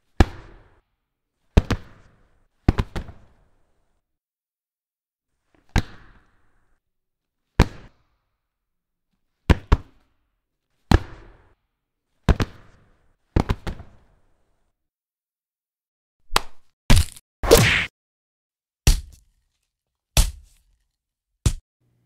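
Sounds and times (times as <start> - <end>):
punch hits: 16.9 - 17.9.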